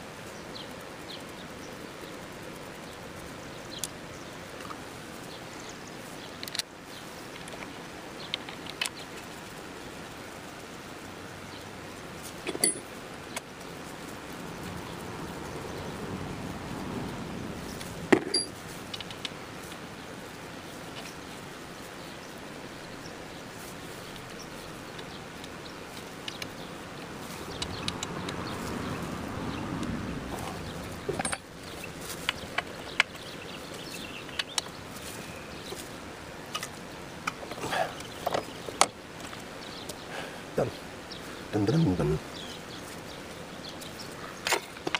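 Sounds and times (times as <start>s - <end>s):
background hiss: 0.0s - 44.9s
outdoor background: 0.0s - 44.9s
metal tool clicks and clinks: 12.5s - 12.9s, 18.2s - 19.3s.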